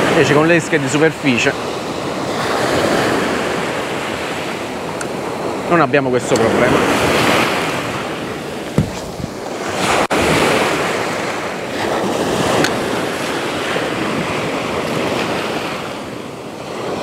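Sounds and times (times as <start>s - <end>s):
small waves breaking on sand: 0.0s - 17.0s.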